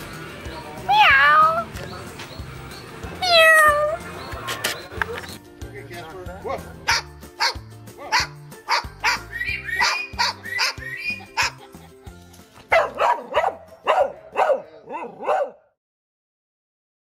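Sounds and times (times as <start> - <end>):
parrot barking: 6.9 - 11.7.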